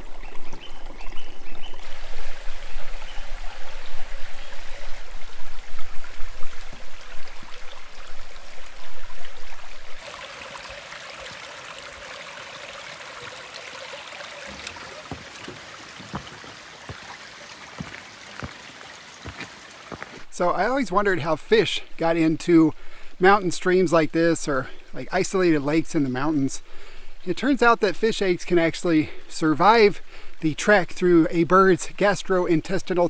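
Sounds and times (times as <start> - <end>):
creek water babbling over pebbles: 0.0 - 22.3.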